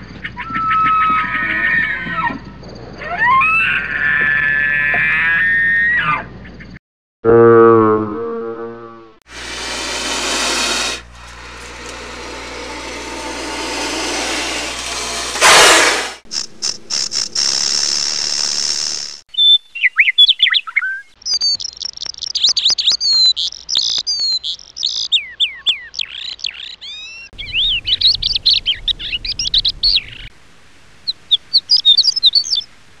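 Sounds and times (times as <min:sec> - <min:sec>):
songbirds singing: 0:19.3 - 0:30.3, 0:31.1 - 0:32.7.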